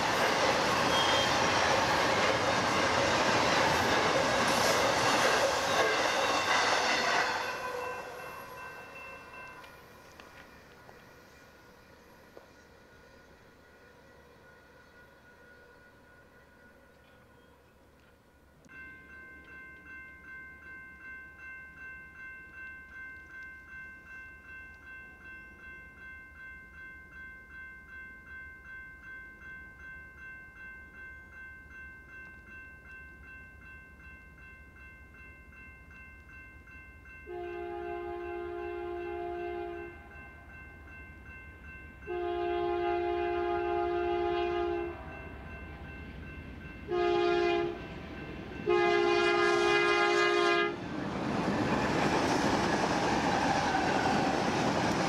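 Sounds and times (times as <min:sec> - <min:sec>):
train rumble: 0:00.0 - 0:17.4, 0:42.2 - 0:55.0
crossing bell ringing: 0:00.0 - 0:55.0
train air horn blasts: 0:37.3 - 0:40.1, 0:42.1 - 0:45.2, 0:46.9 - 0:47.8, 0:48.6 - 0:50.8.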